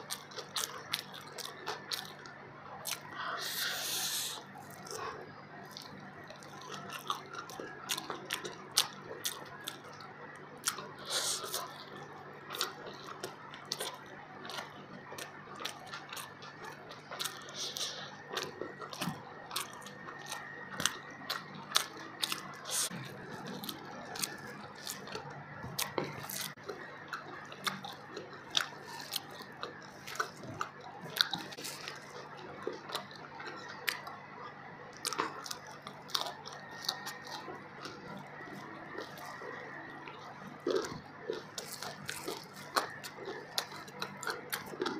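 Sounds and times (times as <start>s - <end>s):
chewing and biting: 0.0s - 44.9s
faint steady hum: 0.0s - 44.9s
small crunches: 35.0s - 44.9s.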